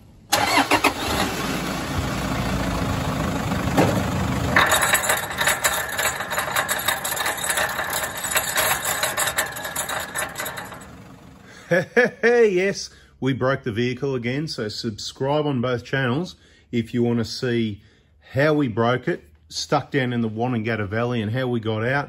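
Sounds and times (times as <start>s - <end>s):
driveline rough rumble: 1.7s - 11.4s
fast clattering and knocking: 4.6s - 11.2s.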